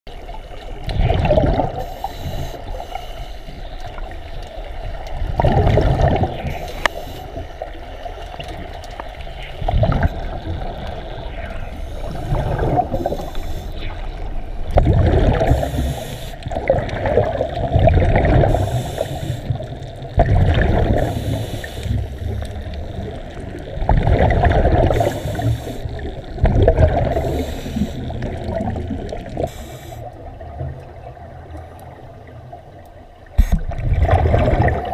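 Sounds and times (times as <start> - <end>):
exhaled air bubbling underwater: 0.1 - 34.9
regulator inhalation hiss: 1.8 - 3.7, 6.5 - 7.6, 11.7 - 14.1, 15.5 - 16.4, 18.4 - 19.7, 21.0 - 22.4, 24.9 - 26.0, 27.1 - 28.2, 29.4 - 30.1.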